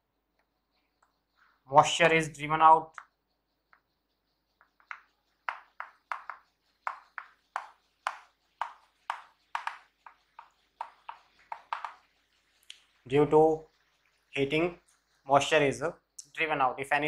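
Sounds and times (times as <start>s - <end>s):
chalk tapping and scraping on blackboard: 3.0s - 15.2s.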